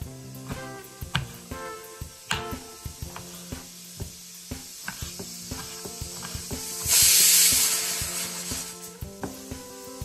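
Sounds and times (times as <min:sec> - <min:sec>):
loud hiss: 0:00.0 - 0:10.0
knife chopping on wooden board: 0:00.4 - 0:01.6, 0:02.3 - 0:03.4, 0:04.8 - 0:06.6, 0:09.2 - 0:09.4.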